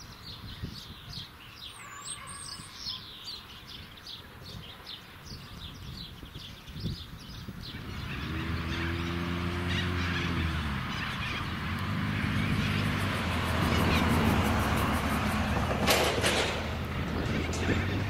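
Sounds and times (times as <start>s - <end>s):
low engine drone: 7.9s - 18.0s.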